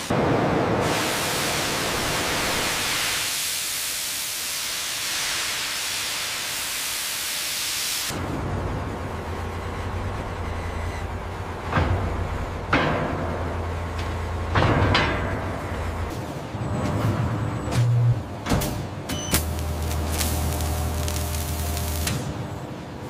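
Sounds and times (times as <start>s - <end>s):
steam venting hiss: 0.0s - 8.3s, 19.4s - 22.4s
low machinery hum: 8.1s - 23.0s.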